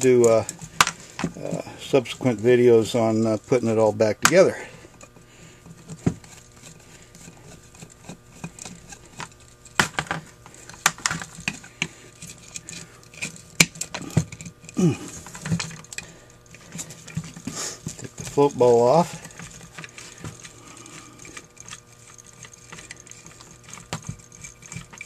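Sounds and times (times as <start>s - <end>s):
screwdriver clicks and scrapes on metal: 5.8s - 9.8s.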